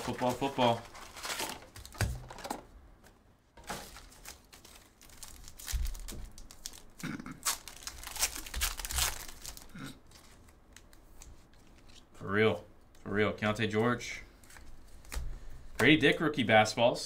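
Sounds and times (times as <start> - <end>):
foil wrapper crinkling: 0.0 - 2.2, 3.6 - 12.0
cardboard handling: 0.0 - 2.6, 3.6 - 6.8.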